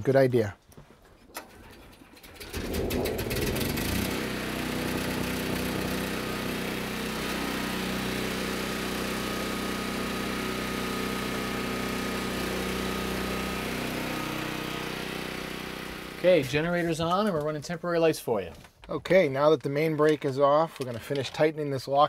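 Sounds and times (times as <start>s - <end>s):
generator engine starting and running: 1.3s - 17.4s.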